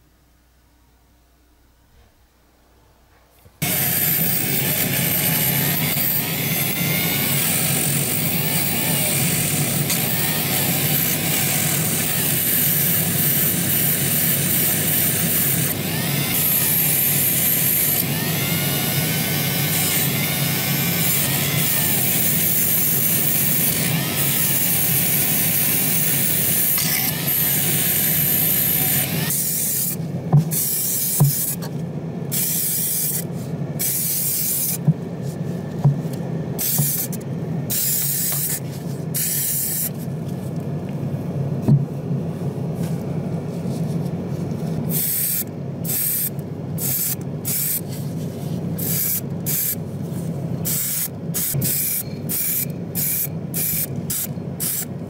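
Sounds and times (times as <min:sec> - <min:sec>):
steady low hum: 0:00.0 - 0:55.0
wire brush rotary tool scrubbing metal: 0:03.6 - 0:30.0.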